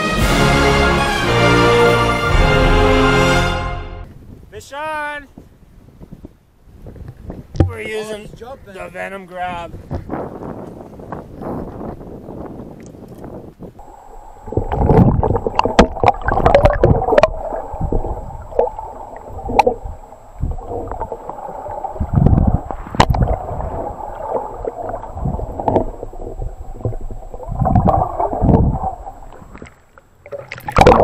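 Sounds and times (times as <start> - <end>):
muffled underwater sloshing: 13.8 - 31.0.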